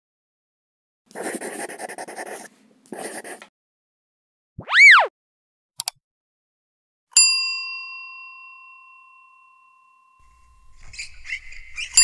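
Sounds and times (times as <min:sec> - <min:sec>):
tone sweeping up and down: 0:04.6 - 0:05.1.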